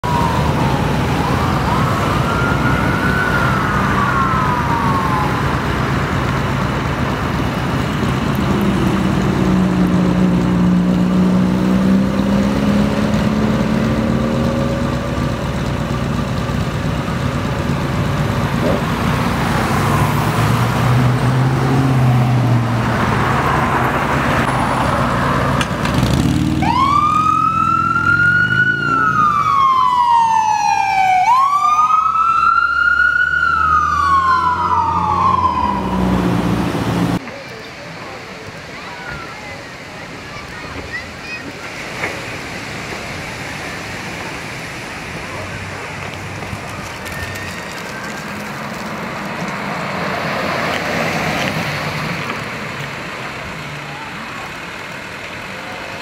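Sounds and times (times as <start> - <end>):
ambulance siren wailing: 0.0 - 6.6, 26.6 - 37.2
traffic engines: 0.0 - 56.0.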